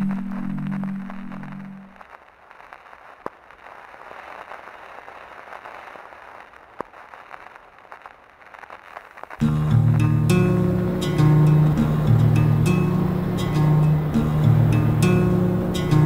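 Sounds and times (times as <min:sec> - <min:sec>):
steady hiss with crackles: 0:00.0 - 0:16.0
loud music: 0:09.4 - 0:16.0.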